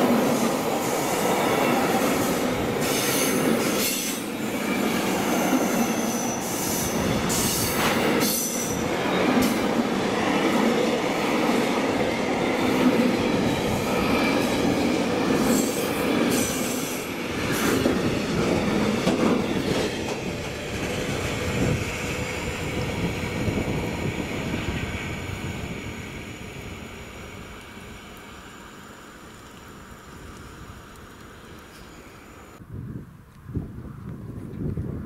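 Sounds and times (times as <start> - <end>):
train wheels clattering over rails: 11.8 - 22.4.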